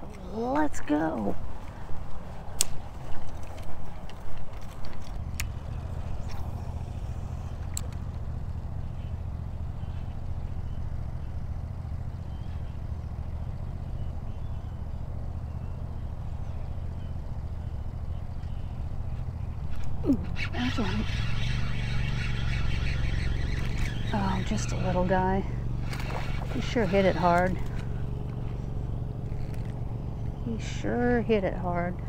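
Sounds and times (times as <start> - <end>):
sharp clicks: 2.5 - 6.4, 7.5 - 8.2.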